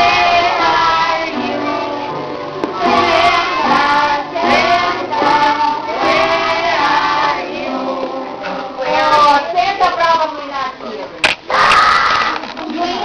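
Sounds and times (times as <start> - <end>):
musical accompaniment: 0.0 - 9.2
children singing: 0.0 - 9.8, 11.4 - 13.0.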